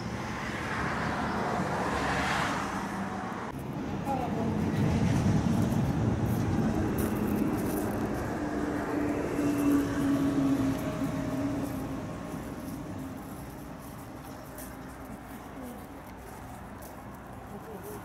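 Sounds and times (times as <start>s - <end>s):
road vehicle passing: 0.0s - 18.0s.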